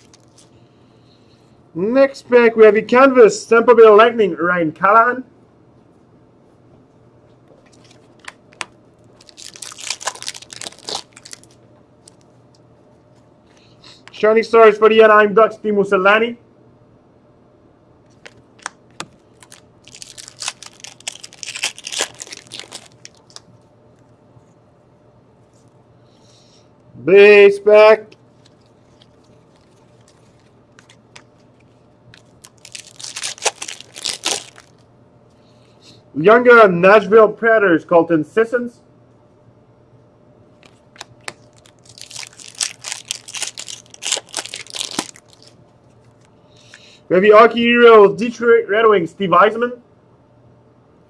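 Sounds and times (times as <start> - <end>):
card pack wrapper crinkling: 0.0 - 0.5, 7.7 - 12.3, 18.1 - 23.5, 28.2 - 34.8, 40.6 - 46.3.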